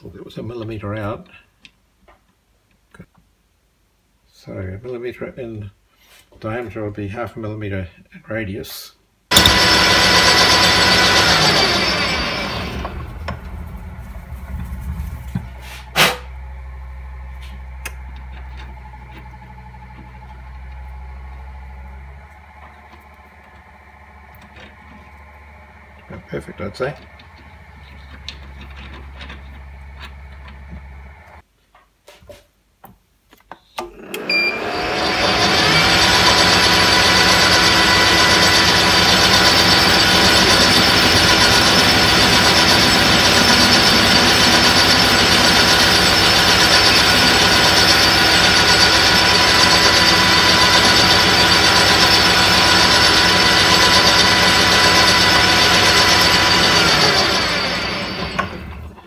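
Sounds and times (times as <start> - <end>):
metal lathe whining: 9.3 - 14.5, 16.3 - 31.4, 34.0 - 59.0.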